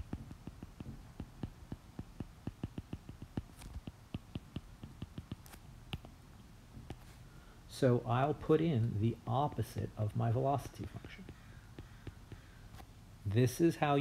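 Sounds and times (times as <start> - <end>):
stylus tapping on glass screen: 0.0 - 6.2, 10.6 - 12.5
stylus tip scratching: 0.0 - 6.2, 6.8 - 7.2.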